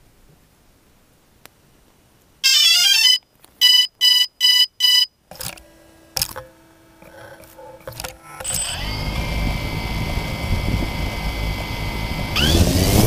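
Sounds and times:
drone electronic beeps: 2.4 - 5.1, 6.2 - 12.8
knocks and handling noise: 5.3 - 8.6.

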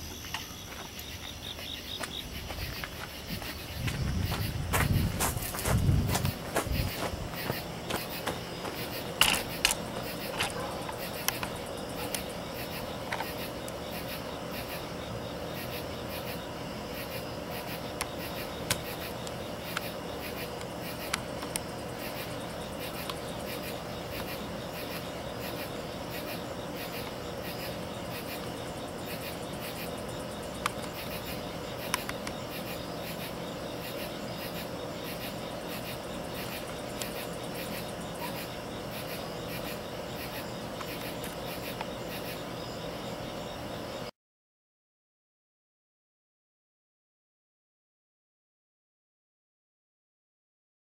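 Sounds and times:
crickets chirping: 0.0 - 44.1.

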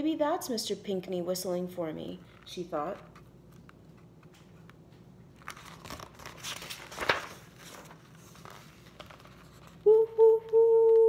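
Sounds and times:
book pages rustling: 2.2 - 9.8.

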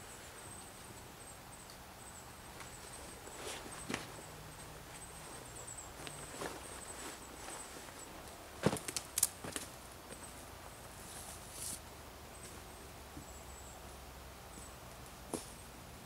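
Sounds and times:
faint forest ambience: 0.0 - 16.0
footsteps snapping twigs: 8.6 - 9.7.

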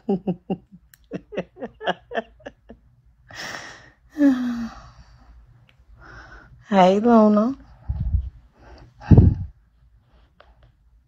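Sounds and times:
woman laughing: 0.0 - 2.8.

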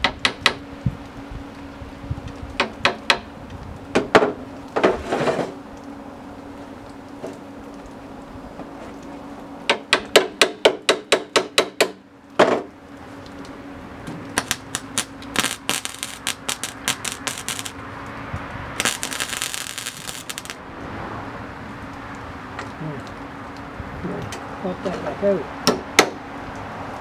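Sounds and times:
mig welder crackling: 0.0 - 20.9
welder low hum: 13.0 - 20.7.

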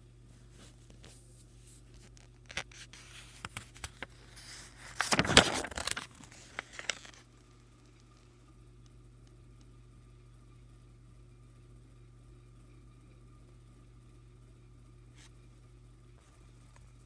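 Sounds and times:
paper page rustling: 0.4 - 7.3.

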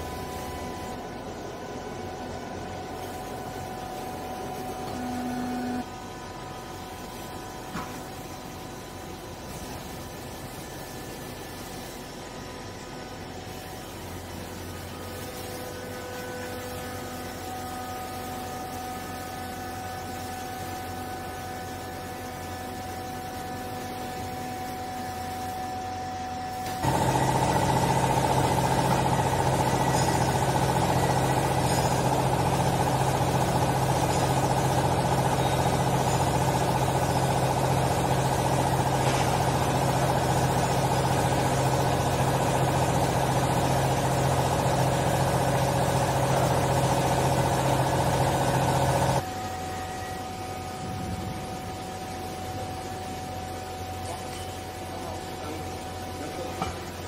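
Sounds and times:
hydraulic baler motor humming: 0.0 - 6.7, 25.7 - 52.1.

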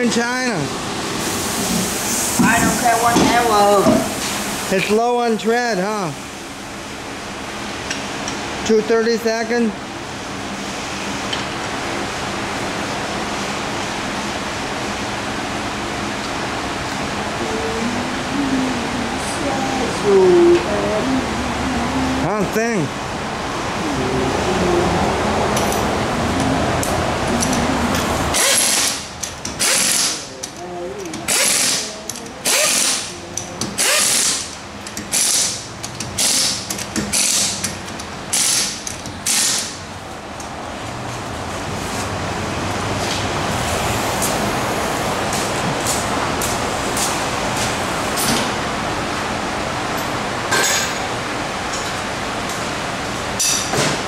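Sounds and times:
pneumatic impact wrench hammering: 27.4 - 30.3, 31.1 - 39.8.

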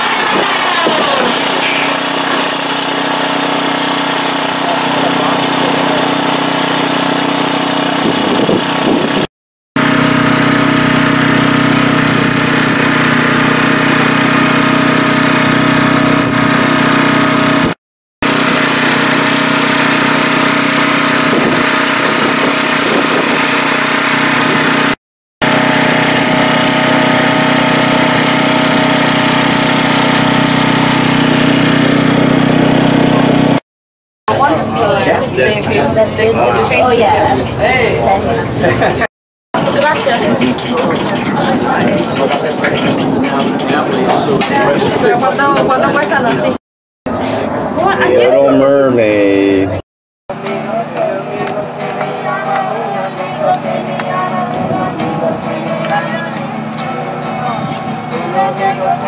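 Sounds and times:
small engine droning: 0.0 - 9.2, 9.8 - 33.6.

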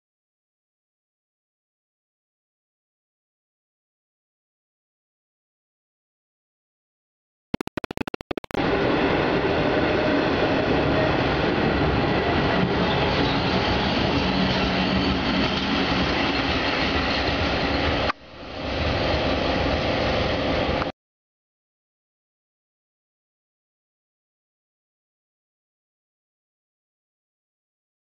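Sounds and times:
train rumbling and rolling: 8.8 - 20.9.

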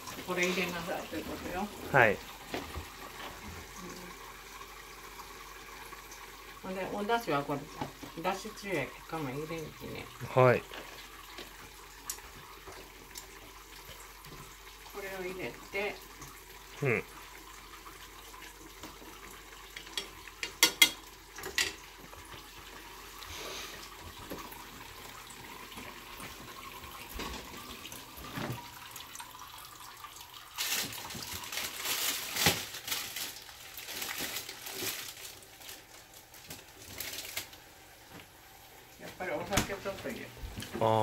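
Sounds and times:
utensils clinking on cookware: 19.8 - 21.8.

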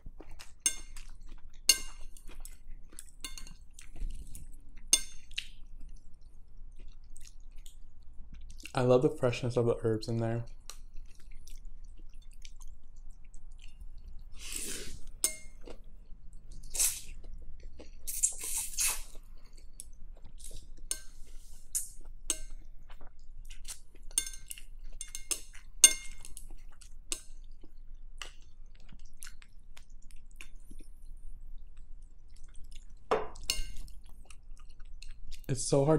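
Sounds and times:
chewing: 0.0 - 8.8, 10.4 - 35.6
noodles slurped: 18.0 - 19.2.

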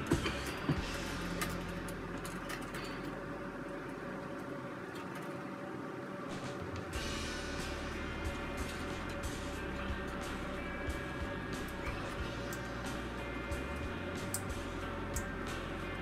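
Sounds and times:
low room hum: 0.0 - 16.0
electrical wires clicking: 8.3 - 16.0.

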